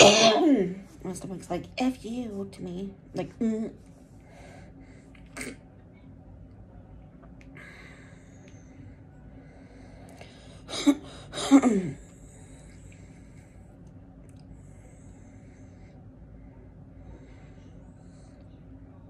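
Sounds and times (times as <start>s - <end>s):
woman making throat sounds: 0.0s - 0.7s, 5.3s - 5.6s.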